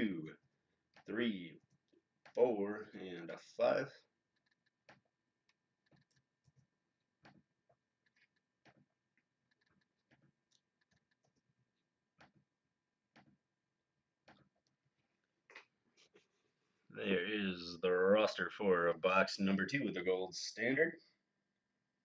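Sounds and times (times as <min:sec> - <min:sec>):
computer mouse and keyboard clicks: 0:04.3 - 0:11.5, 0:13.1 - 0:13.4.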